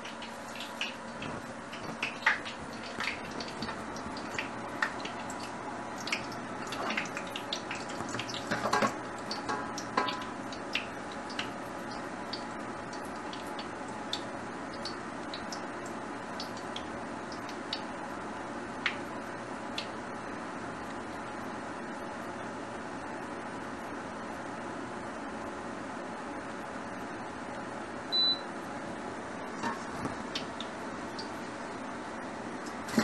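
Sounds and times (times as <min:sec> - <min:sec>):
hot oil popping and hissing: 0:00.0 - 0:18.2.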